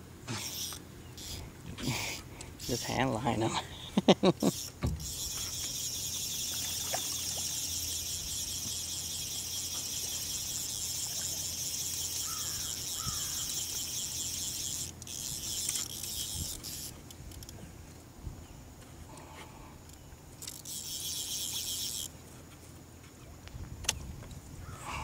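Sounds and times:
insect chorus buzzing: 0.3s - 3.4s, 4.0s - 17.4s, 18.4s - 22.2s.

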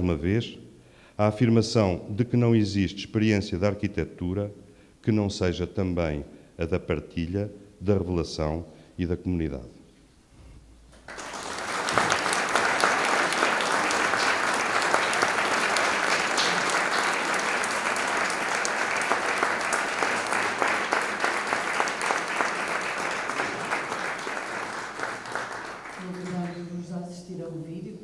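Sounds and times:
audience applauding: 11.0s - 26.8s.

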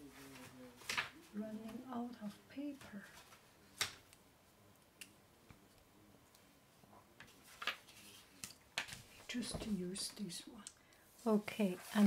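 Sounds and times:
paper rustling: 0.0s - 1.8s, 2.8s - 4.0s, 7.2s - 9.7s.

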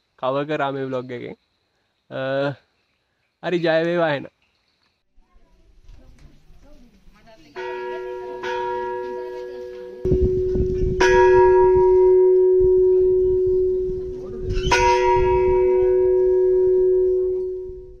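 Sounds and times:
bell ringing: 7.6s - 18.0s.

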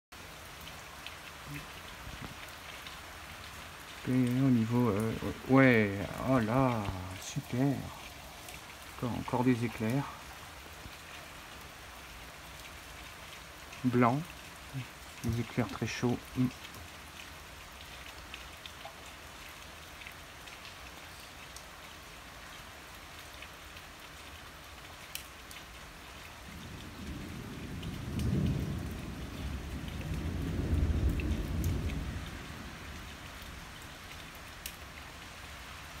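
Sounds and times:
steady rain falling: 0.1s - 36.0s
rolling thunder rumble: 26.5s - 33.1s.

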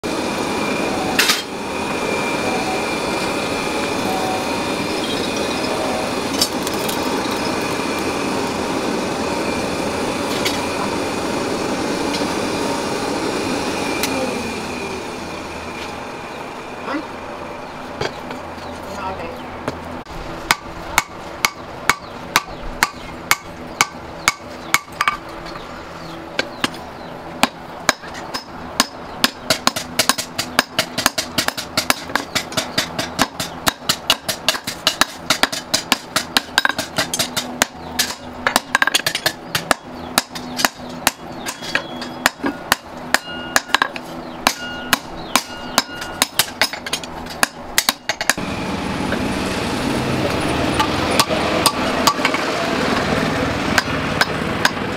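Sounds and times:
steady noise: 0.0s - 31.8s
hammer ringing on anvil: 36.4s - 46.8s.

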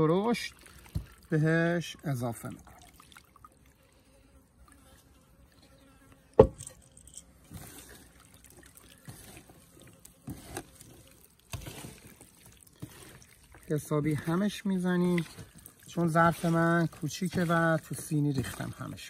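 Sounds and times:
sharp knock: 6.4s - 6.6s
raw meat squelching by hand: 7.3s - 19.0s.

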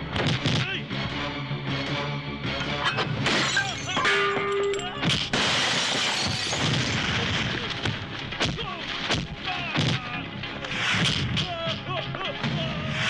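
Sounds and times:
glass and wood shattering crash: 3.0s - 10.6s.

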